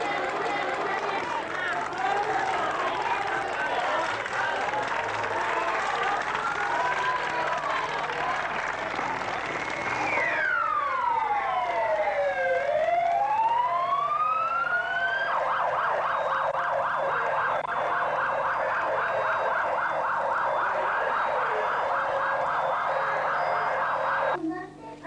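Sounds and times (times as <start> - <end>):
electronic siren wailing: 9.7 - 24.4.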